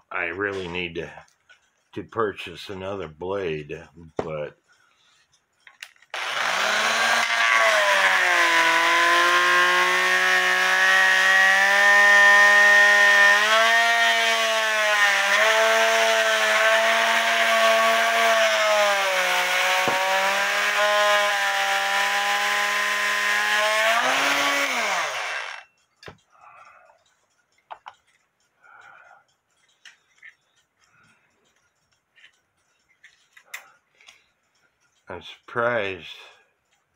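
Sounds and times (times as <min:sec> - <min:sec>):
oscillating multi-tool cutting wood: 0:06.1 - 0:27.2.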